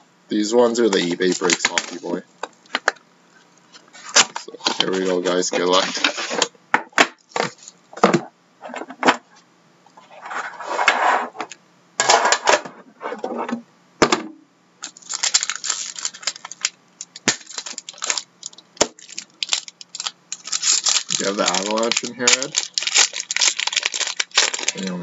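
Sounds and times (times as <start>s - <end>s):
foil wrapper tearing: 1.0s - 2.2s, 14.8s - 25.0s.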